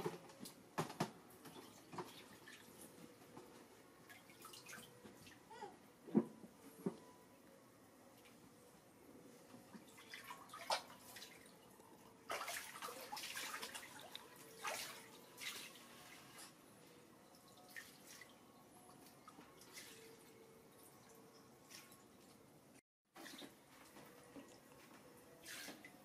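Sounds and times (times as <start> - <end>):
water splashing in pool: 9.8 - 11.6, 12.2 - 16.2.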